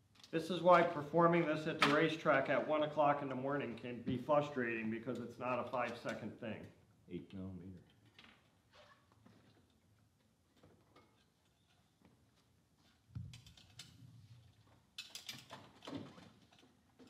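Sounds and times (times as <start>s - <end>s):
metal parts clinking: 15.0s - 15.9s.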